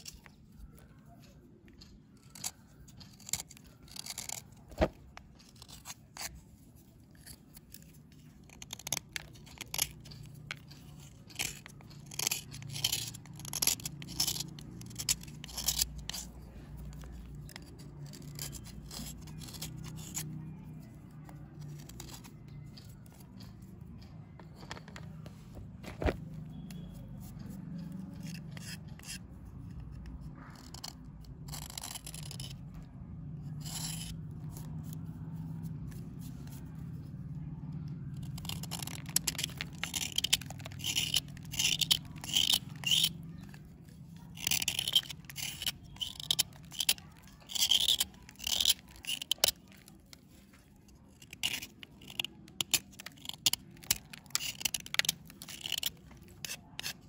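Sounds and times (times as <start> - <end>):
knife scraping soap: 0.0 - 57.0.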